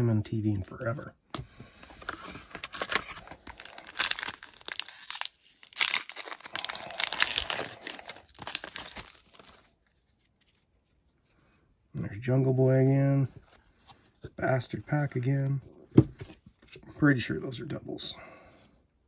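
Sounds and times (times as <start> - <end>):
foil wrapper crinkling and tearing: 2.0 - 10.7.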